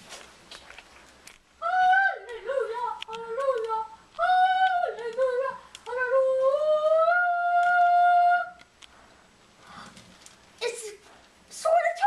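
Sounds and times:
high-pitched voice singing: 1.6 - 8.6.

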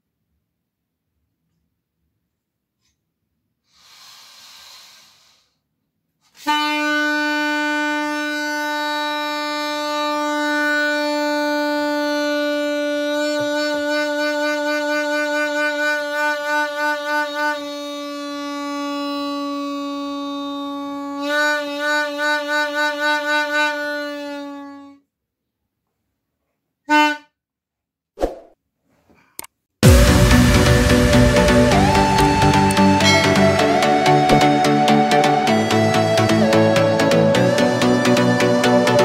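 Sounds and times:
loud steady horn tone: 6.4 - 24.8, 29.8 - 39.0.

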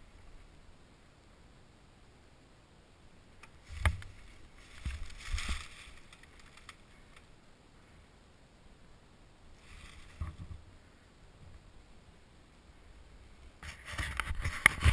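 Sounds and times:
boots crunching through dry leaves: 3.7 - 6.2.

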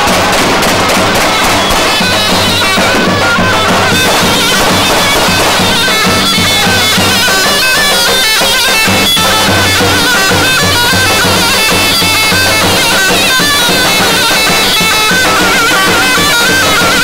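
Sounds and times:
bass drum beat: 0.0 - 7.7
zurna playing folk melody: 0.0 - 17.0.

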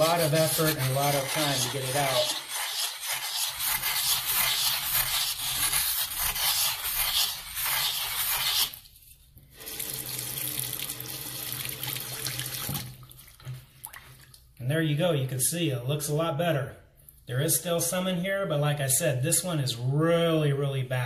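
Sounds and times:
pumice scrubbing porcelain sink: 0.0 - 14.1
faucet running water: 9.6 - 14.4.

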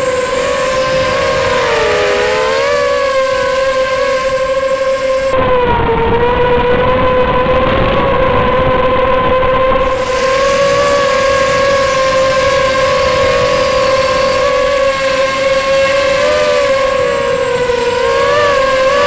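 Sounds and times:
constant rushing noise: 0.0 - 19.0
quadcopter motors whining: 0.0 - 19.0.

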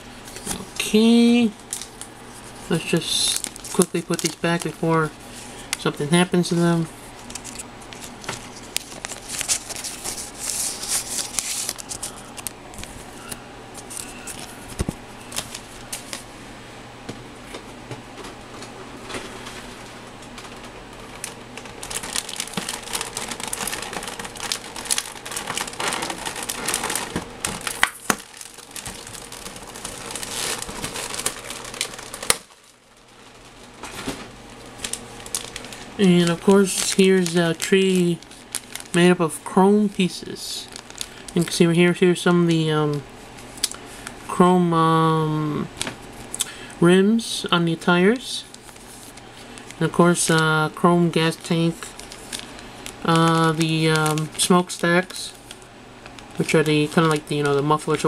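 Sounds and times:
plastic bags crinkling: 0.2 - 16.3, 19.0 - 44.4, 47.8 - 58.0.

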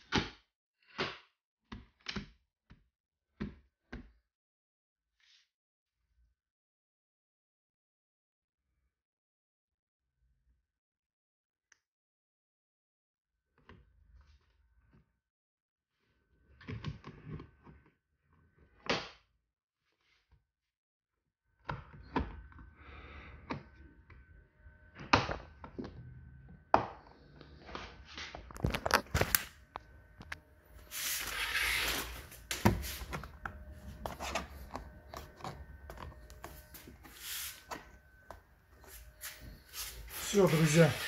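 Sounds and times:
plastic scraping rub: 27.7 - 41.0.

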